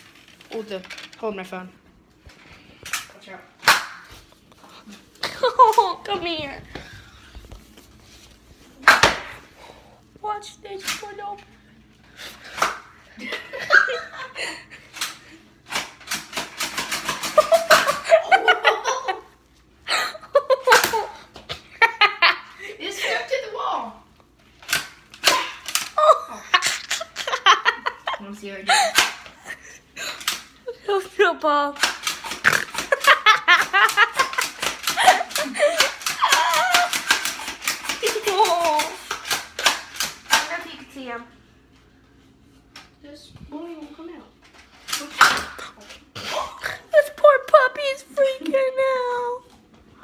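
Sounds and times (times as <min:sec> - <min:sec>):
girl laughing loudly: 0:13.2 - 0:14.8, 0:17.4 - 0:22.6, 0:26.0 - 0:30.2, 0:32.6 - 0:37.1.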